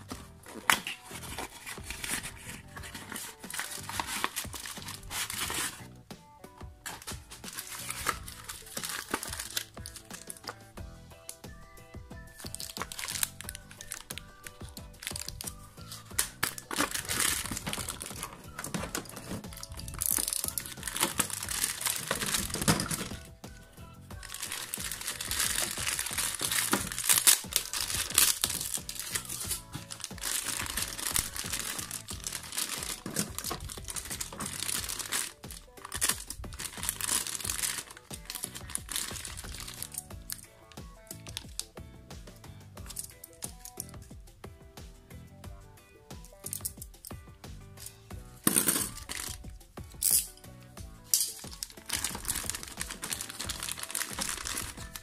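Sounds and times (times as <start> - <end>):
plastic bags crinkling: 0.0 - 5.8, 6.8 - 10.6, 12.4 - 23.3, 24.2 - 40.5, 48.4 - 49.5, 51.1 - 55.0
background music: 0.0 - 55.0.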